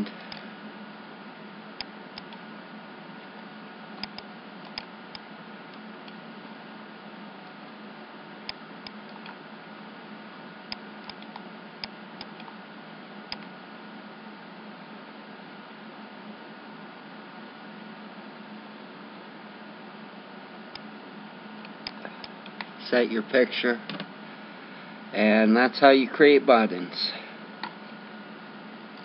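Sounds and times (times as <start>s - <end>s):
faint hum: 0.0s - 29.0s
steady background hiss: 0.0s - 29.0s
computer mouse clicking: 1.8s - 2.4s, 4.0s - 6.2s, 10.7s - 12.6s, 13.3s - 13.5s.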